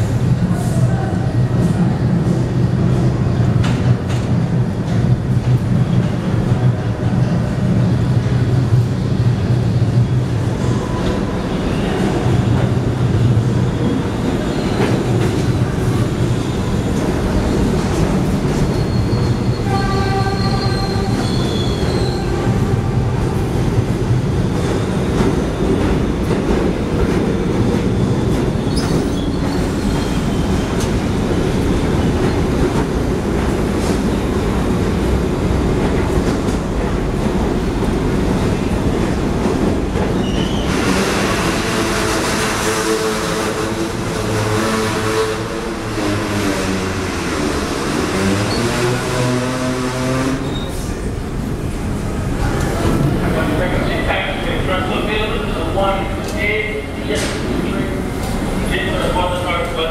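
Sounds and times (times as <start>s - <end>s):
subway train wheels rumbling: 0.0s - 59.9s.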